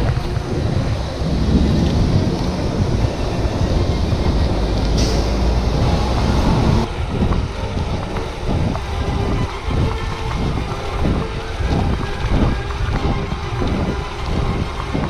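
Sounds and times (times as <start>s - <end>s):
bike tyres rumbling on road: 0.0s - 15.0s
wind on microphone: 0.0s - 15.0s.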